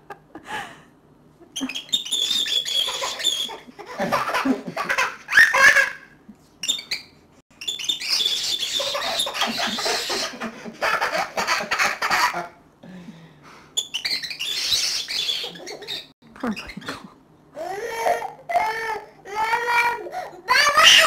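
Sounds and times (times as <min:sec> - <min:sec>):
cockatiel chirping: 0:01.6 - 0:03.6, 0:06.6 - 0:10.2, 0:13.8 - 0:16.1
baby laughing and squealing: 0:01.6 - 0:06.1, 0:07.7 - 0:12.4, 0:14.1 - 0:16.9, 0:17.6 - 0:21.0.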